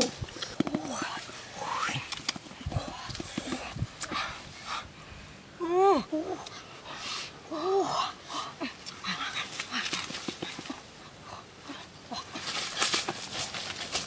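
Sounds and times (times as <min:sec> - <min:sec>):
rustling in dry leaves: 0:08.6 - 0:14.0.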